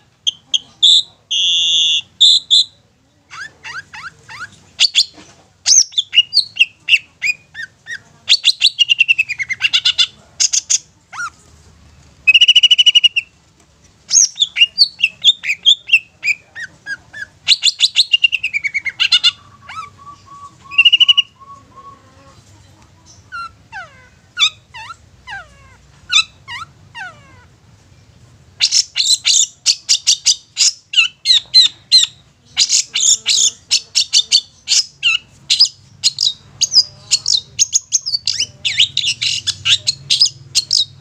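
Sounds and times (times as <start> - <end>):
harsh buzzy bird phrases: 0.3 - 11.4, 14.1 - 27.6, 28.5 - 41.0
bird singing chirps and whistles: 17.5 - 22.0.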